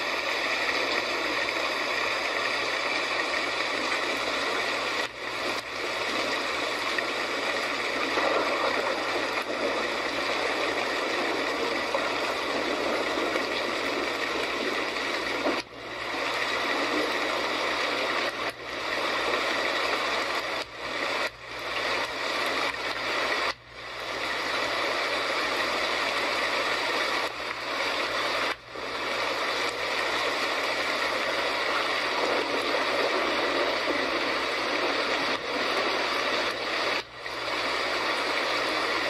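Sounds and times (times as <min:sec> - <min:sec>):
rain falling: 0:00.0 - 0:23.6.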